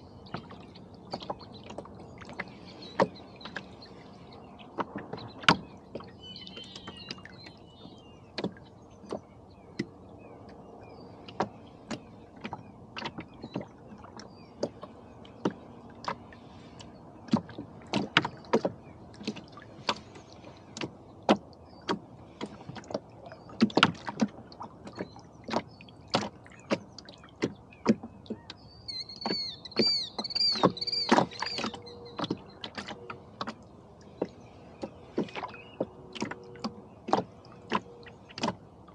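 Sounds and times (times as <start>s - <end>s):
waves slapping a boat hull: 0.0s - 38.9s
high chirping bird calls: 6.1s - 8.1s, 28.5s - 32.6s.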